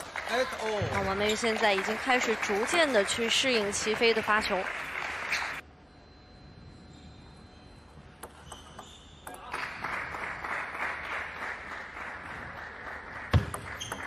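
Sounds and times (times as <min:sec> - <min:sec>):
people clapping: 0:00.0 - 0:05.6, 0:09.3 - 0:14.0
table tennis ball bouncing: 0:08.2 - 0:09.4, 0:13.3 - 0:14.0.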